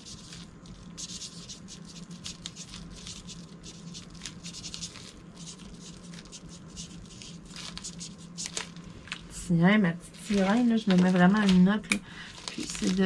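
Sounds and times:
marker pen scratching on plastic: 0.0 - 8.8
faint low hum: 0.0 - 13.0.

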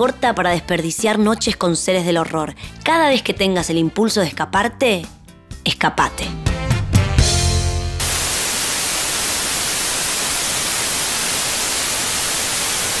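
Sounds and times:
music: 0.0 - 8.1
white noise static hiss: 8.0 - 13.0.

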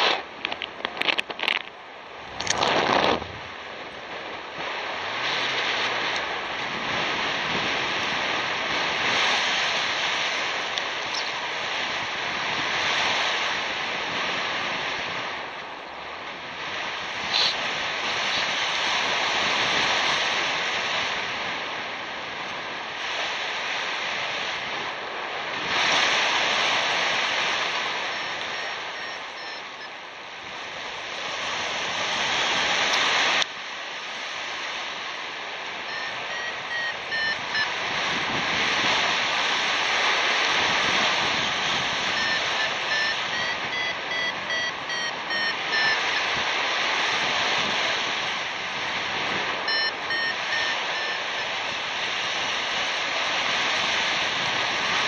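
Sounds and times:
wind rushing over microphone: 0.0 - 55.0
variometer beeping: 27.9 - 30.1, 35.8 - 38.1, 41.8 - 46.4, 49.6 - 51.9.

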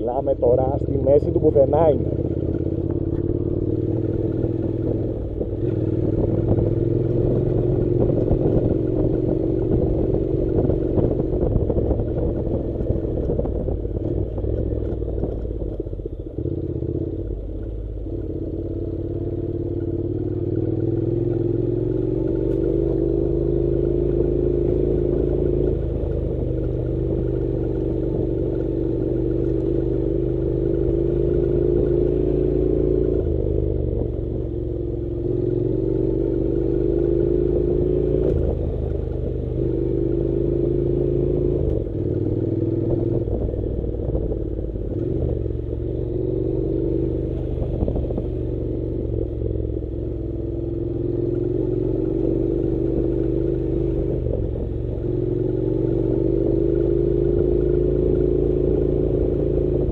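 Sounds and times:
motorcycle engine running: 0.0 - 59.9.

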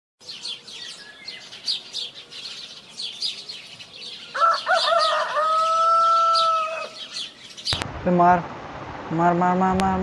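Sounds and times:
songbirds chirping: 0.2 - 8.4
rooster crowing: 4.3 - 7.1.

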